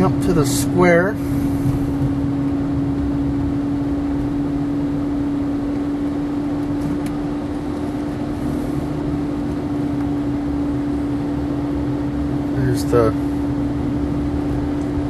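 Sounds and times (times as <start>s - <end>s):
car engine and road hum: 0.0s - 15.0s.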